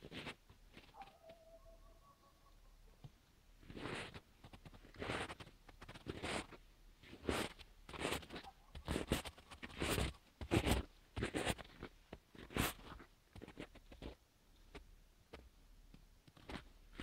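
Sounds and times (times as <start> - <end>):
footsteps crunching in snow: 3.6 - 14.8.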